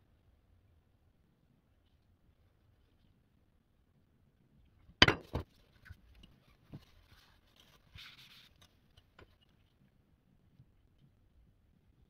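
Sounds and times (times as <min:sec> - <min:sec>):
soft rustle: 0:01.6 - 0:03.6, 0:05.4 - 0:12.0.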